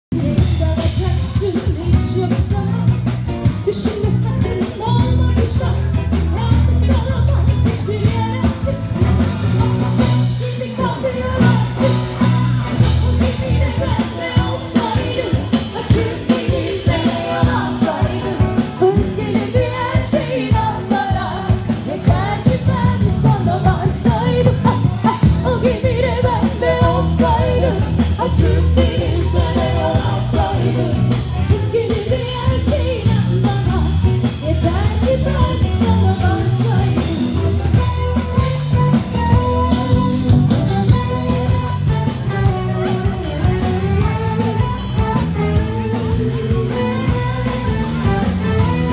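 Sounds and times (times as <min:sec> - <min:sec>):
bass guitar: 0:00.0 - 0:48.9
drum kit: 0:00.1 - 0:48.9
electric guitar: 0:00.1 - 0:48.9
person singing: 0:03.6 - 0:48.9.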